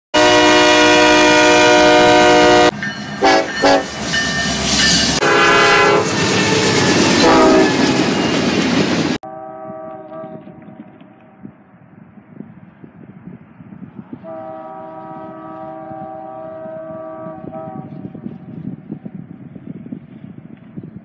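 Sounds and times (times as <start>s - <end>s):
locomotive air horn blasts: 0.2s - 3.9s, 5.2s - 6.2s, 7.2s - 8.0s, 9.2s - 10.7s, 14.2s - 18.0s
distant train horn: 0.2s - 4.0s, 5.1s - 8.2s, 9.2s - 11.4s, 14.2s - 18.3s
freight train rumbling past: 0.2s - 21.0s.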